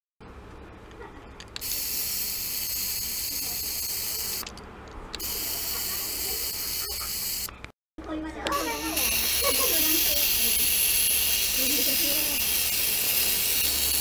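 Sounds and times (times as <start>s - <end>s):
ultrasonic device hissing: 1.6s - 4.5s, 5.2s - 7.6s, 8.5s - 14.0s.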